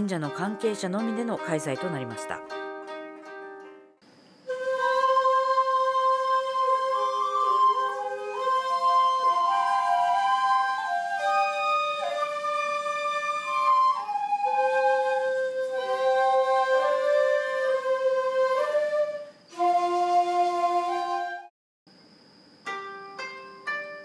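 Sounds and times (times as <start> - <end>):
bamboo flute ensemble long notes: 4.5 - 21.5.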